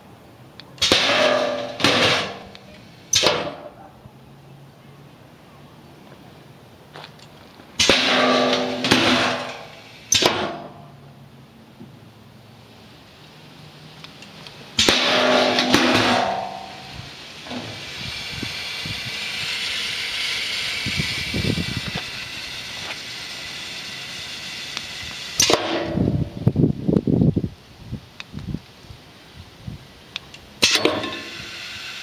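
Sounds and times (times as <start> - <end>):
long steady air hiss: 0.0 - 32.0
burst of air: 14.7 - 26.6.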